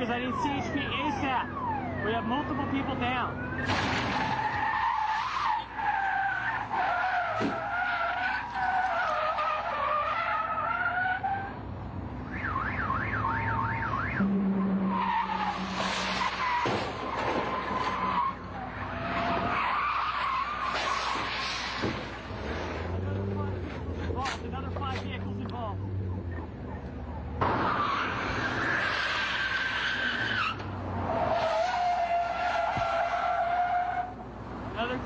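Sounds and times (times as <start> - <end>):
siren yelp: 0.0 - 3.7, 12.3 - 16.6, 25.7 - 30.6
car tyres squealing: 0.0 - 35.0
horn-like tone: 14.2 - 15.8.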